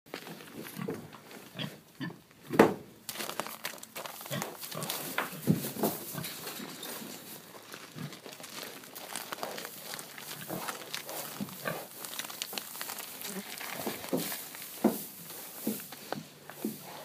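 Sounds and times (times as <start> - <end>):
pigs grunting: 4.3 - 6.4, 9.0 - 12.2.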